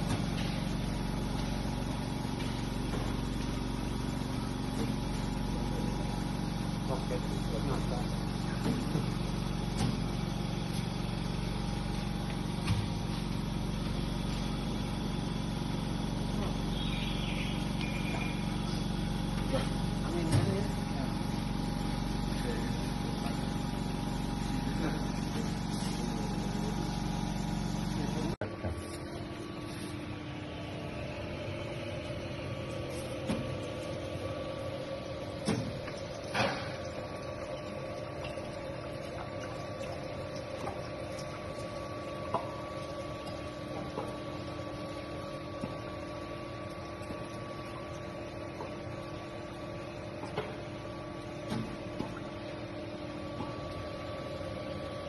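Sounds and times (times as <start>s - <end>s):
deep motor hum: 0.0s - 55.0s
machine humming and whining: 0.0s - 55.0s.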